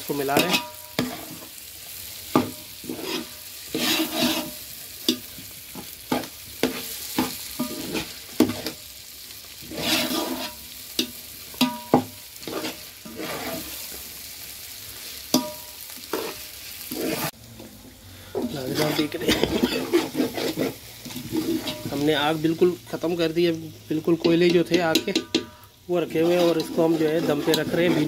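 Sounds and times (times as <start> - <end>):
frying sizzle: 0.0 - 28.0
spoon scraping pot: 2.8 - 5.2, 9.7 - 10.6, 12.4 - 13.7, 18.4 - 22.0, 24.2 - 28.0.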